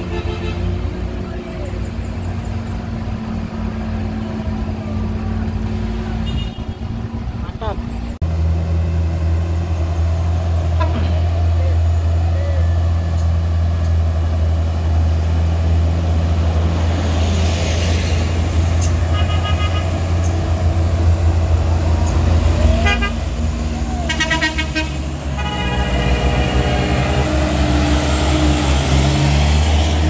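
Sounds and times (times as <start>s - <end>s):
vehicle horns: 0.0s - 1.1s, 5.7s - 7.1s, 10.7s - 11.4s, 18.8s - 20.5s, 22.6s - 23.4s, 24.0s - 28.4s
truck engines droning: 0.0s - 30.0s.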